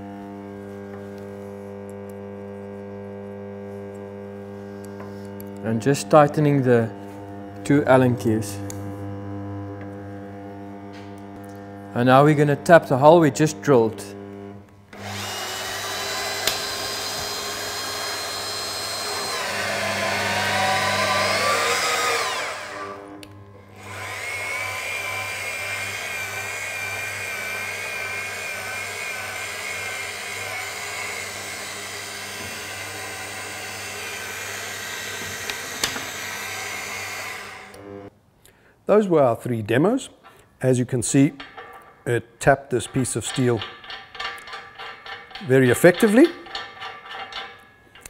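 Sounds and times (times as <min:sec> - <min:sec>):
drill motor whining: 0:06.8 - 0:38.1.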